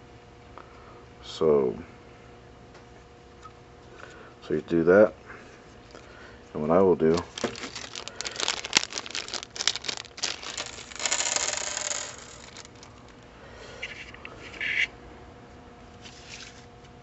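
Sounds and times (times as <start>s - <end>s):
parts clicking and tapping: 7.1s - 13.2s.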